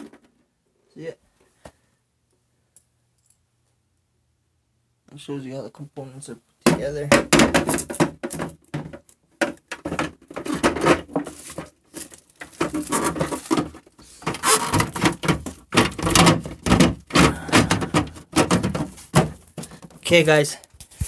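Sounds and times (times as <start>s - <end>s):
phone handling rustles and thuds: 6.7s - 20.1s.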